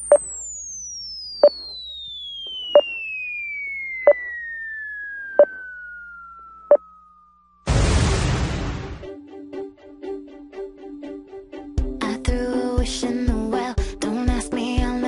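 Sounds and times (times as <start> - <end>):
falling whistle: 0.0 - 7.6
explosion crash: 7.7 - 9.1.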